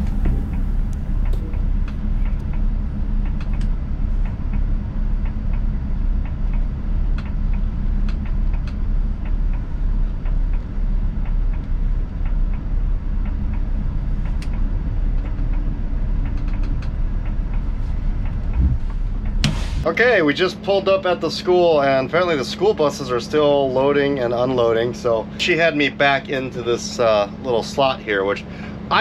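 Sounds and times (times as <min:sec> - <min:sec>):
road noise: 0:00.0 - 0:20.8
bus engine drone: 0:00.0 - 0:29.0.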